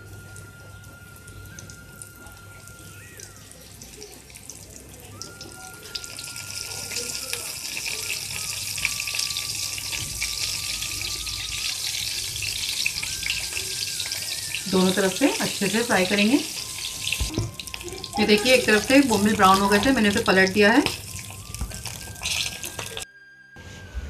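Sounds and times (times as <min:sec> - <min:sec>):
fish frying in oil: 0:00.0 - 0:23.0.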